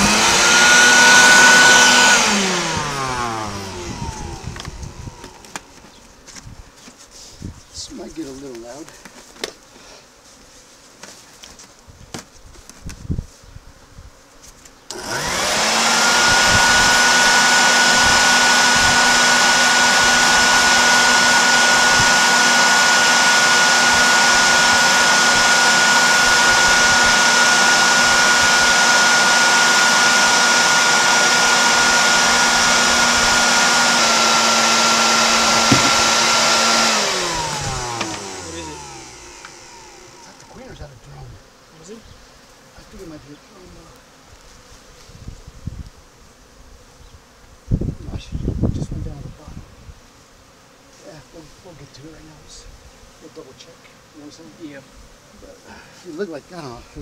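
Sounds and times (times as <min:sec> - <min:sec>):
vacuum motor whining: 0:00.0 - 0:06.5, 0:14.9 - 0:41.0.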